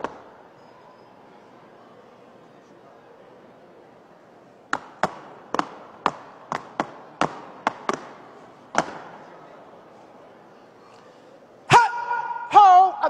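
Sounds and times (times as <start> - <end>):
sharp smacks with echo: 4.7 - 9.2.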